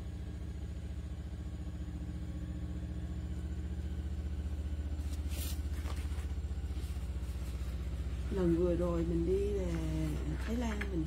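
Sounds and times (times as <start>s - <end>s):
pulsing motor hum: 0.0s - 11.0s
brief rustle: 5.0s - 7.8s.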